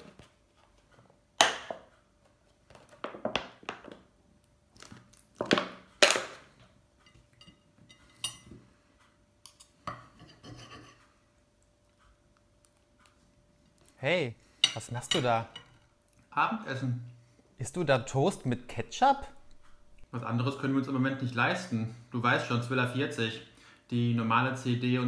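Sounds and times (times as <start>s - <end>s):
knife and fork scraping plate: 9.9s - 11.1s.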